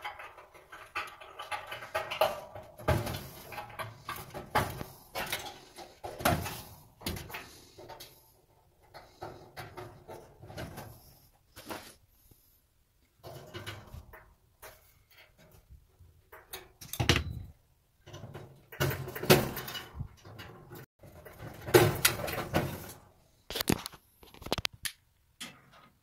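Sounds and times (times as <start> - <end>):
metal clicks and scrapes: 0.0 - 12.0.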